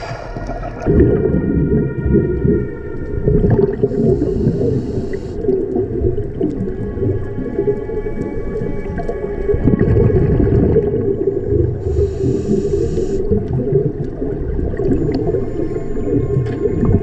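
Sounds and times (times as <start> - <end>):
low underwater rumble: 0.0 - 17.0
faint thin tones: 3.8 - 5.5, 11.8 - 13.3, 14.8 - 17.0.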